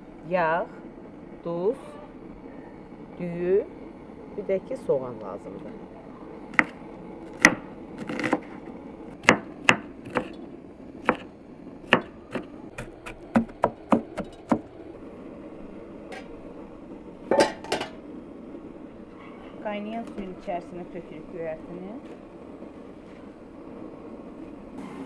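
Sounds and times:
knife chopping on wooden board: 9.2s - 10.4s, 11.0s - 11.3s, 11.9s - 14.6s.

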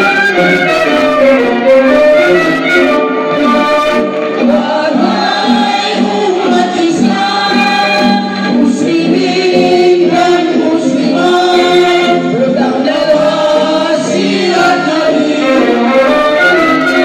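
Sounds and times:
men's choir singing: 3.3s - 17.0s.

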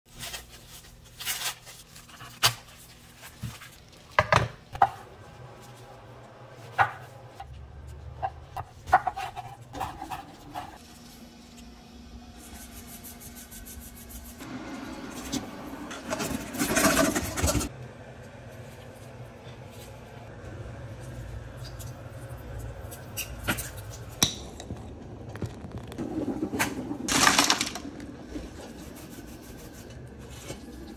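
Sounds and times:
potatoes clattering into metal pot: 27.1s - 27.9s.

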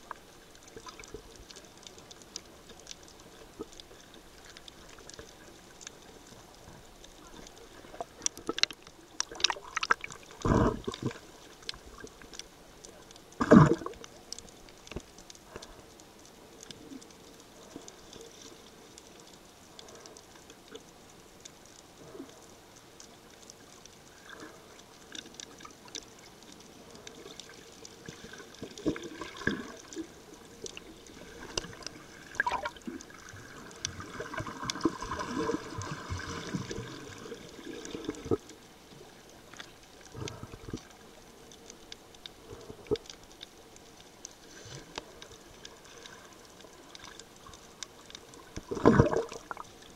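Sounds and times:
bubbling water: 0.0s - 12.4s, 13.2s - 15.0s, 26.8s - 43.3s, 44.8s - 49.9s
muffled underwater water movement: 0.0s - 49.9s
underwater clicks: 0.0s - 49.9s.

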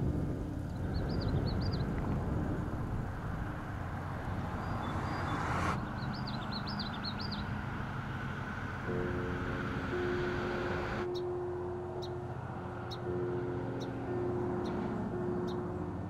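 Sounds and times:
wind rumbling on microphone: 0.0s - 11.1s
songbird warbling: 0.6s - 2.2s, 4.2s - 8.8s.

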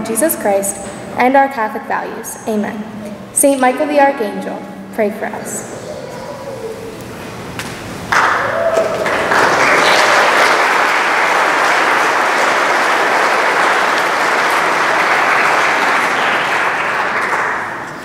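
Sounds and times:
audience applauding: 8.1s - 18.0s.

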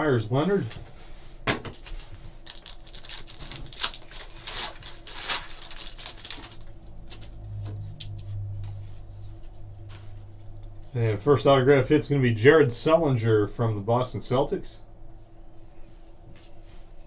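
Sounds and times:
low steady hum: 0.0s - 17.0s
foil wrapper crinkling and tearing: 1.7s - 7.3s
cards rustling: 1.8s - 7.4s.

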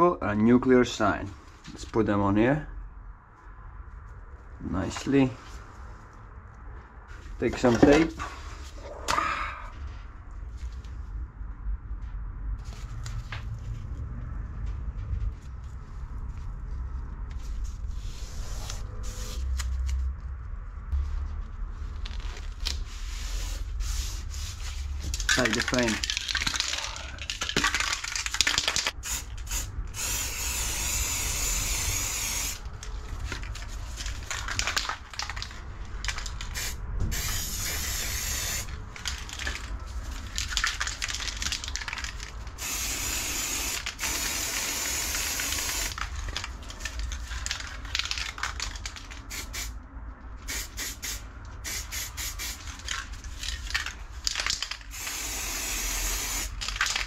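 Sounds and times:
aerosol spray can hissing: 29.0s - 32.6s, 36.4s - 38.7s, 42.6s - 46.0s, 49.3s - 49.7s, 50.5s - 52.6s, 54.9s - 56.6s.

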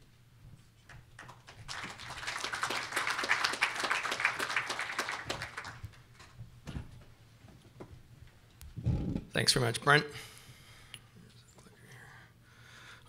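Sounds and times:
audience applauding: 1.2s - 6.3s.

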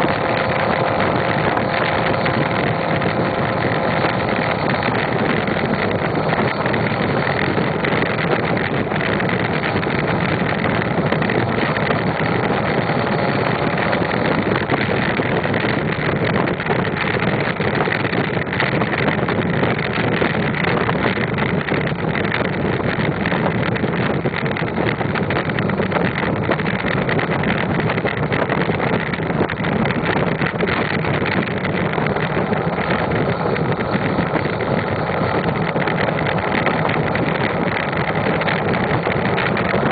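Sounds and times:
diesel truck engine running: 0.0s - 39.9s
wind noise on microphone: 0.0s - 39.9s.

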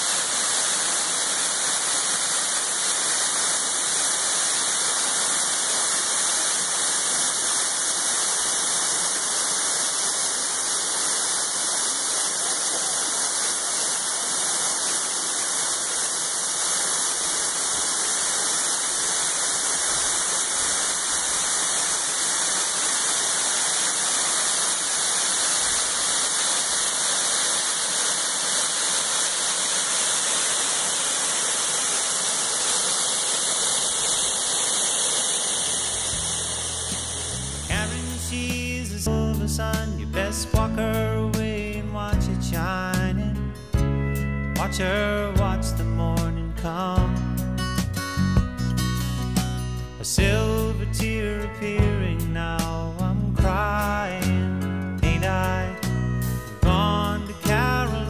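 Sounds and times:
waterfall rushing: 0.0s - 38.6s.

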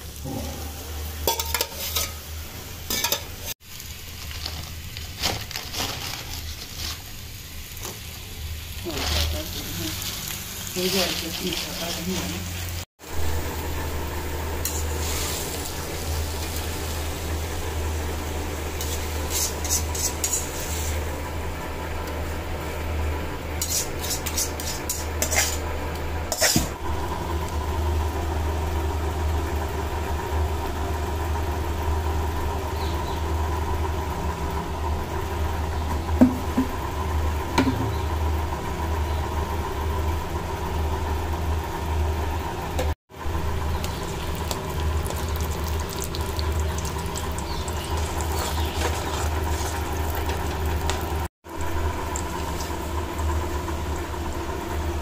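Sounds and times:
metal utensils clinking and scraping: 0.2s - 3.6s, 8.8s - 12.6s, 18.8s - 21.0s, 23.6s - 25.7s, 26.3s - 26.7s.

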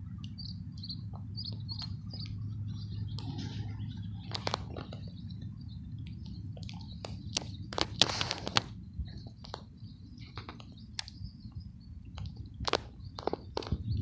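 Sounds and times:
faint bird chirps: 0.0s - 7.7s
low steady rumble: 0.0s - 14.0s
scattered clicks: 4.2s - 11.2s
short rustle: 7.8s - 8.8s.

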